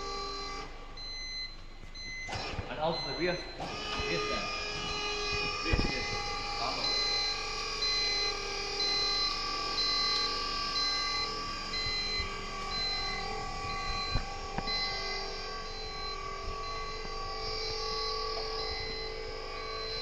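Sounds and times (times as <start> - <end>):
hydraulic pump humming: 0.0 - 20.0
warning buzzer beeping: 0.0 - 20.0.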